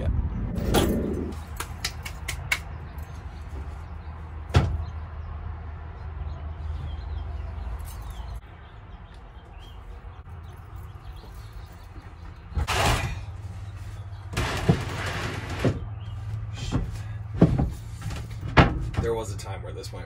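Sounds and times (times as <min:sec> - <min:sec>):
low steady rumble: 0:00.0 - 0:01.6
wooden boards knocking: 0:16.6 - 0:19.1.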